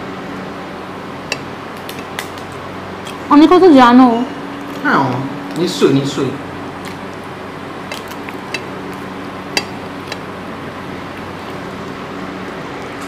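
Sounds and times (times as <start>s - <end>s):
steady low hum: 0.0s - 13.0s
clicks and taps on plates: 1.3s - 2.3s, 7.9s - 8.8s, 9.5s - 10.3s.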